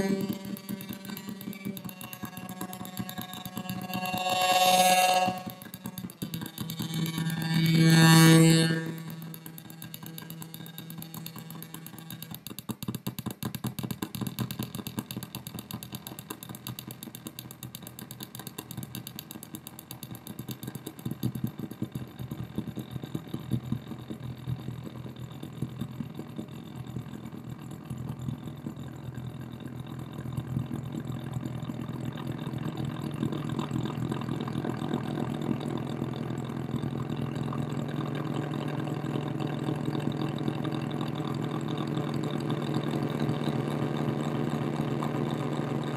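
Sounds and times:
steady low hum: 0.0 - 12.6
rapid pulsing electronic buzz: 0.0 - 45.9.

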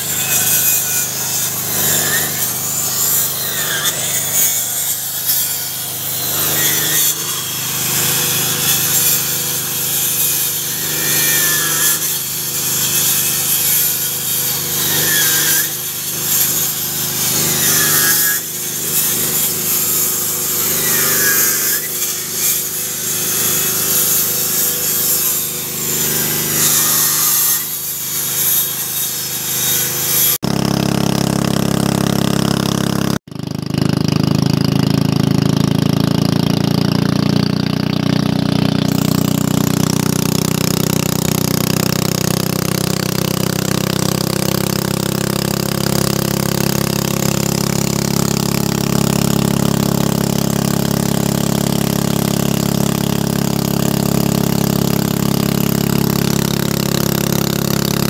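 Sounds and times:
electric saw cutting wood: 0.0 - 58.0
boat engine running: 30.4 - 58.0.

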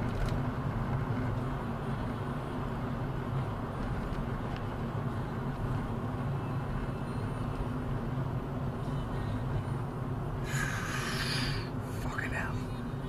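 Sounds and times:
car cabin engine and road noise: 0.0 - 13.0.

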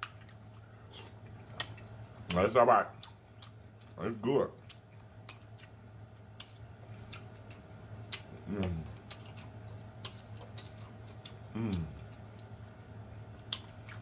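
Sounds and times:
person humming: 8.4 - 9.0, 11.5 - 12.0.

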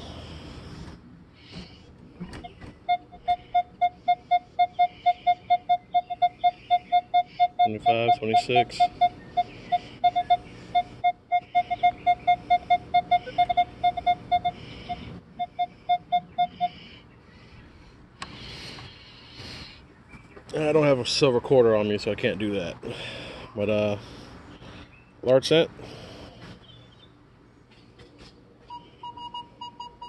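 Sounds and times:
metal detector beeping: 2.4 - 16.8, 28.7 - 30.0.

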